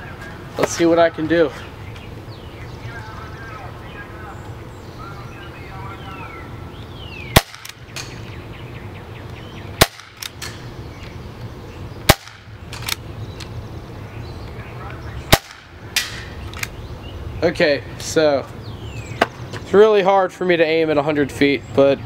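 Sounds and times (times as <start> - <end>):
air pistol shots: 7.3 - 8.2, 9.8 - 10.6, 12.1 - 13.0, 15.3 - 16.7.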